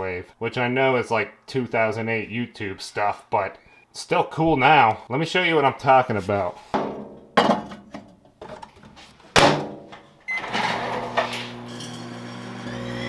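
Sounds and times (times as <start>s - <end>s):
microwave oven humming: 10.3s - 13.0s.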